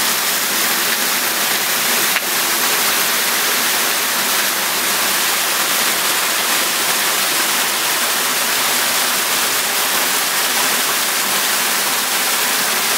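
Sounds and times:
water pouring from waterfall: 0.0 - 12.9.

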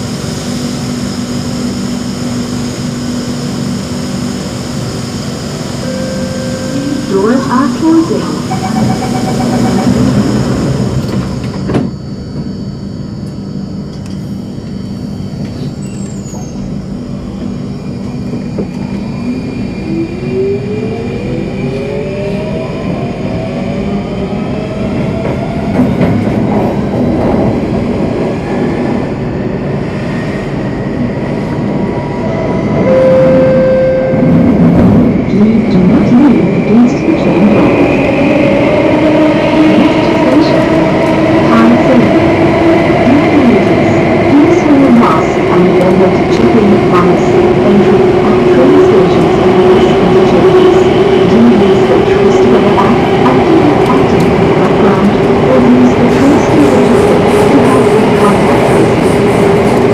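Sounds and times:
train running rumble: 0.0 - 59.9
train doors knocking shut: 11.0 - 12.5.

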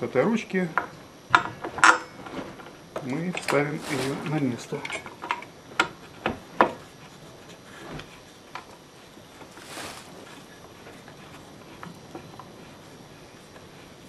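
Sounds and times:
short rustle: 3.4 - 4.8, 9.0 - 11.8.

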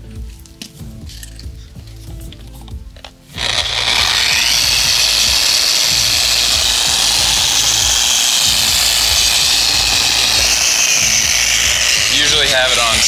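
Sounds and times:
orbital polisher running: 3.4 - 13.0.

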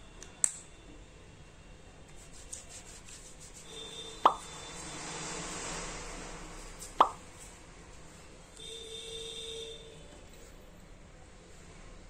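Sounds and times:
hands rubbing with gel: 2.1 - 4.5
sharp plops: 4.2 - 4.5, 7.0 - 7.2.

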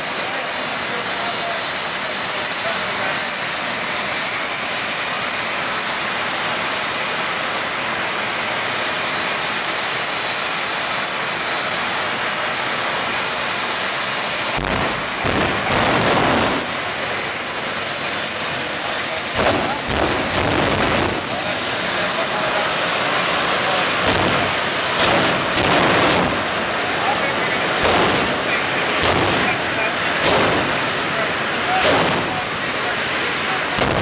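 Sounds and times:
jet engine idling whine: 0.0 - 34.0
exhaust rushing: 14.3 - 34.0
low rumbles: 14.3 - 34.0.

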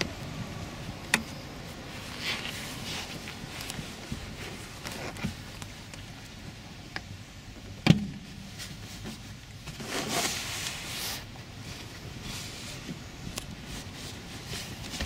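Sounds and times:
fabric and foam rustling: 1.6 - 5.9, 8.2 - 15.0.

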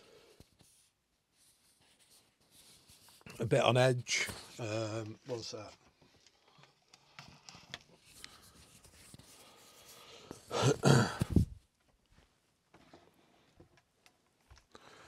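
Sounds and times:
camera handling rustles and knocks: 11.2 - 11.6.

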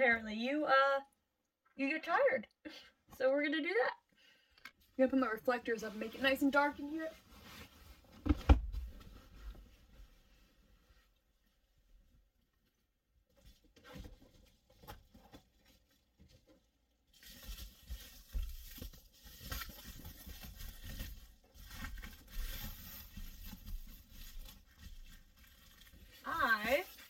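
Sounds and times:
window covers crinkling: 17.1 - 27.0.

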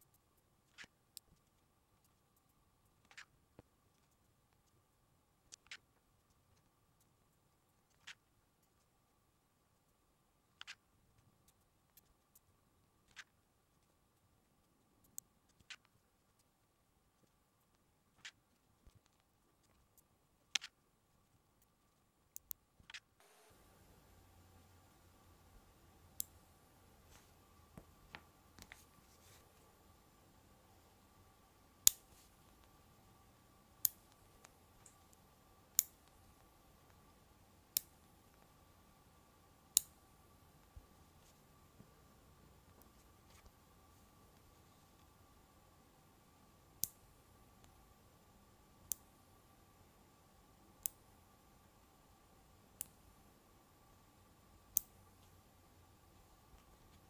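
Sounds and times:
magnet balls clicking: 33.8 - 36.2.

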